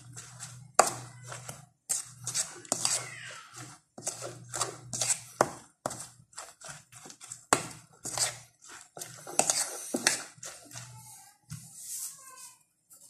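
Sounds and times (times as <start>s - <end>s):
fork stirring in a bowl: 0.0s - 11.7s.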